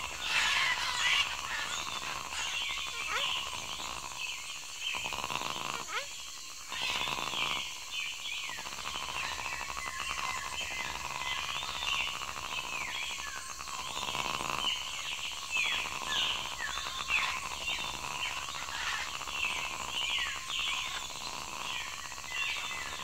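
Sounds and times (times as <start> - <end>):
birds chirping: 0.0 - 23.0
insects and frogs trilling: 0.0 - 23.0.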